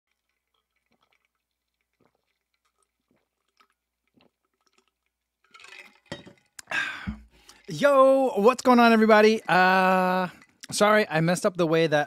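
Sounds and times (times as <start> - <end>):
person gulping drink: 0.1 - 7.7.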